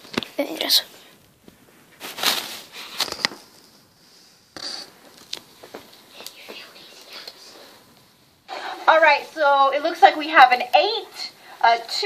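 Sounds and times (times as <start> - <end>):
handling rustling and scraping: 0.0 - 6.0.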